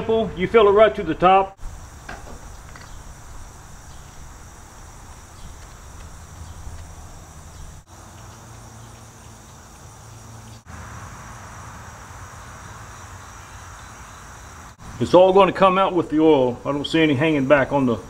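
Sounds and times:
insects chirring: 1.6s - 18.0s.

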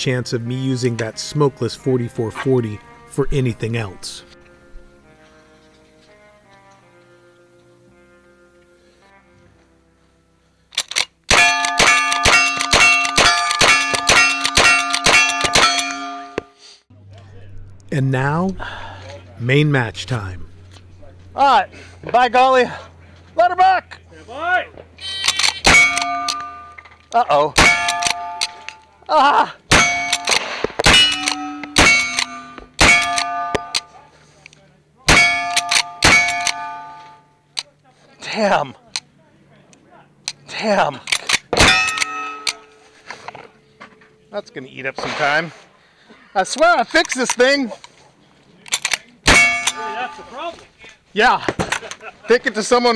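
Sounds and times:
rifle action clicks: 10.7s - 15.9s, 25.2s - 26.5s, 27.8s - 28.8s, 30.1s - 32.4s, 35.5s - 36.6s, 41.0s - 42.6s, 48.6s - 49.1s
rifle shots: 11.3s - 16.1s, 27.6s - 28.7s, 29.7s - 33.8s, 35.1s - 36.8s
steel targets ringing: 11.3s - 16.6s, 25.6s - 27.0s, 27.6s - 29.0s, 29.7s - 34.2s, 35.1s - 37.4s, 41.6s - 43.1s, 49.3s - 50.4s.

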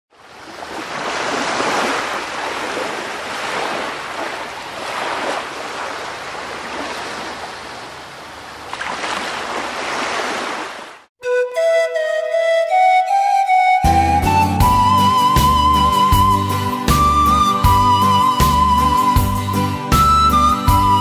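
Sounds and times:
sea waves washing in: 0.1s - 11.1s.

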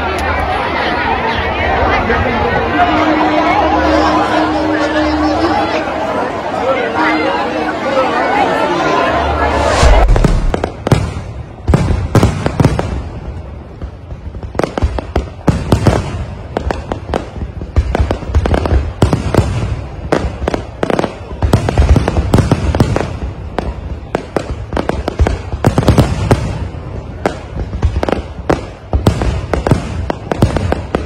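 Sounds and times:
fireworks bangs and crackling: 8.9s - 31.0s.

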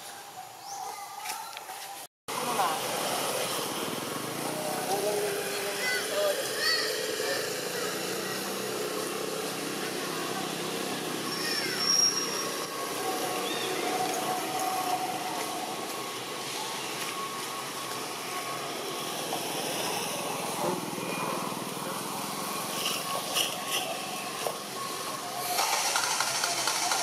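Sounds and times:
outdoor background din: 0.0s - 27.0s
faint distant calls: 2.4s - 25.6s.

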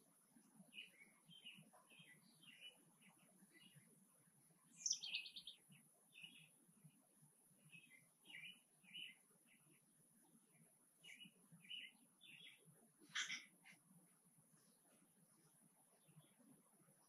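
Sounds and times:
small bird chirping: 0.7s - 3.9s, 4.7s - 6.6s, 7.7s - 9.8s, 11.0s - 13.8s.

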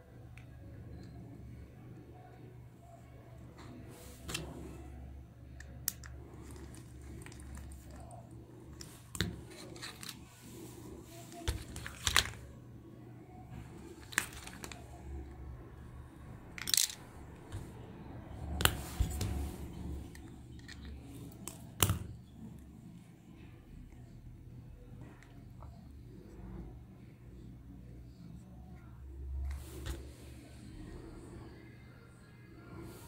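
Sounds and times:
low steady hum: 0.0s - 33.0s
plastic toy parts clicking: 5.6s - 8.0s, 16.5s - 17.6s.

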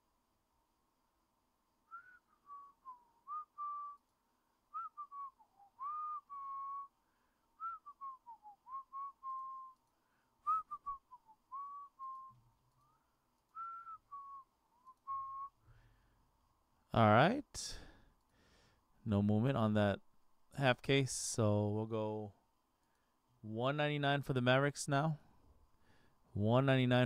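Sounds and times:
person whistling a tune: 1.9s - 4.0s, 4.7s - 6.9s, 7.6s - 9.8s, 10.4s - 15.6s.

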